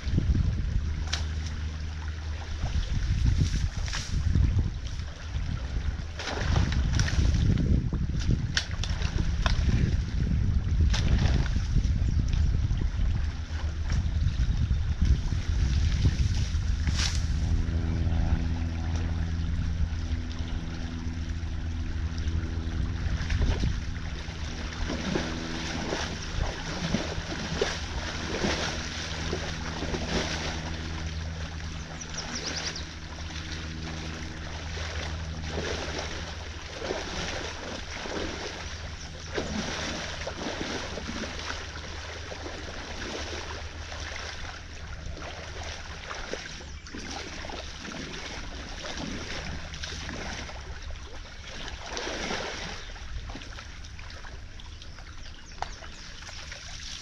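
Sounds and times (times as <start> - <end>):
low steady hum: 0.0 - 57.0
creek water rushing: 23.9 - 46.3.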